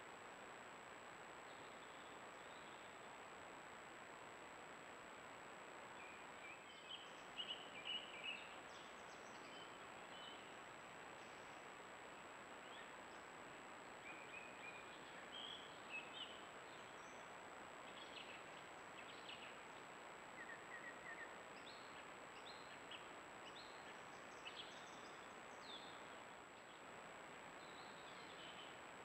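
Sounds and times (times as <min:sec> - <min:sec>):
microphone hiss and whine: 0:00.0 - 0:29.0
faint bird chirps and whistles: 0:06.0 - 0:10.5, 0:14.0 - 0:17.3, 0:20.3 - 0:26.2.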